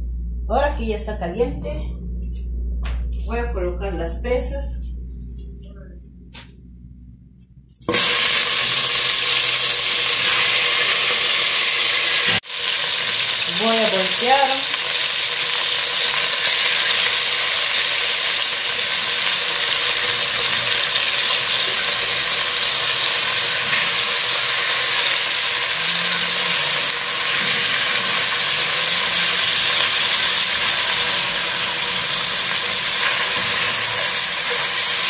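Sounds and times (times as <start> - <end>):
chicken sizzling in hot oil: 7.9 - 35.0.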